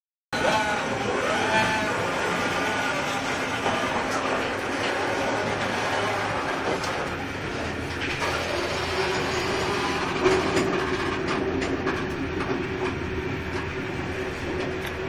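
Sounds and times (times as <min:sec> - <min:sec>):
train carriage rumble and hum: 0:00.4 - 0:15.0.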